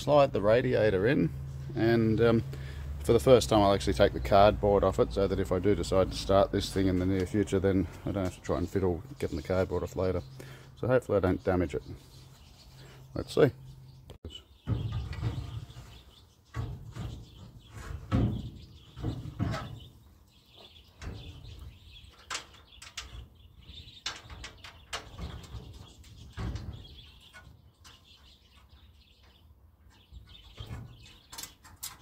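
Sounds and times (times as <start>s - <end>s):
birds chirping: 0.0s - 32.0s
metal scraping: 14.6s - 20.0s
metal knocks and bumps: 14.6s - 32.0s.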